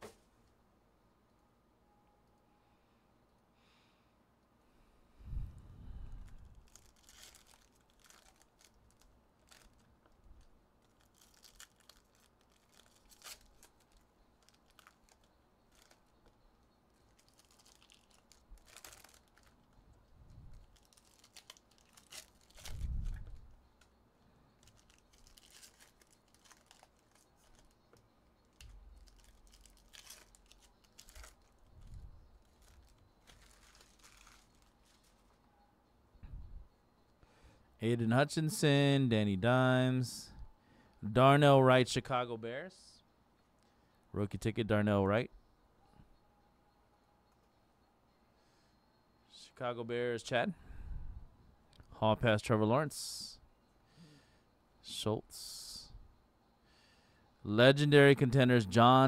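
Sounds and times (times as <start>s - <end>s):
foil wrapper tearing: 6.6s - 9.9s, 10.8s - 16.0s, 17.1s - 19.6s, 20.7s - 23.2s, 24.6s - 27.7s, 28.5s - 31.6s, 32.4s - 35.4s.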